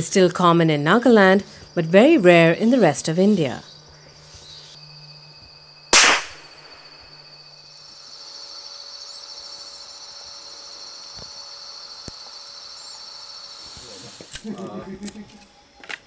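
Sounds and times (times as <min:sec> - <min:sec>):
insect trill: 0:00.0 - 0:16.0
gunshot: 0:05.9 - 0:06.8.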